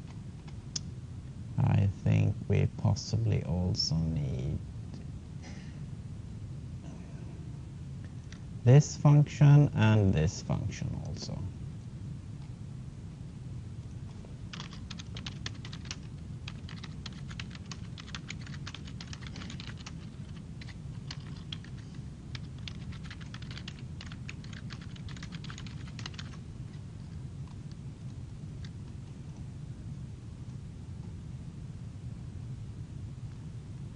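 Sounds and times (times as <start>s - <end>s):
typing on a computer keyboard: 14.5s - 26.4s.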